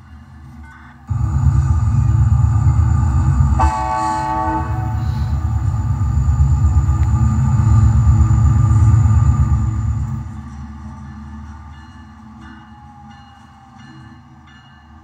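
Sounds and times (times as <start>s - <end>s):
locomotive horn blast: 1.1s - 10.3s
model diesel engine rumble: 1.1s - 10.3s.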